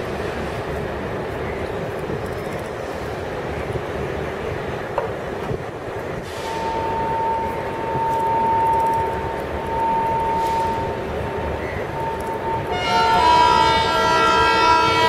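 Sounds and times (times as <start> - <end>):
train rumble: 0.0 - 15.0
steady high tone: 6.4 - 14.0.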